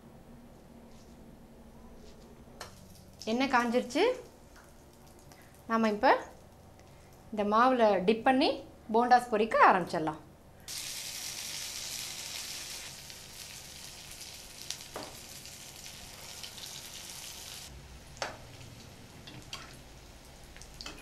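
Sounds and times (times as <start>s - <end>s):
food sizzling in hot oil: 10.7s - 21.0s.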